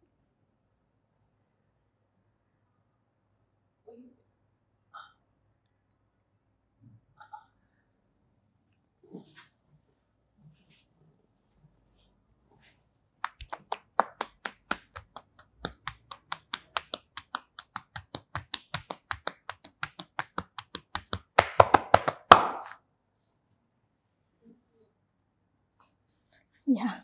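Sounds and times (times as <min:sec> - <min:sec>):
hands clapping on back: 0:13.2 - 0:22.8.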